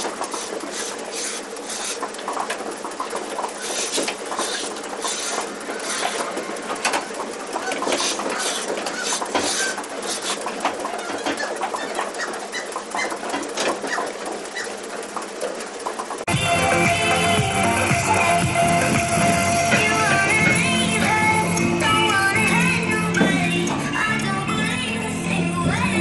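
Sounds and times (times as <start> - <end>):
milking equipment clicking and hissing: 0.0 - 16.3.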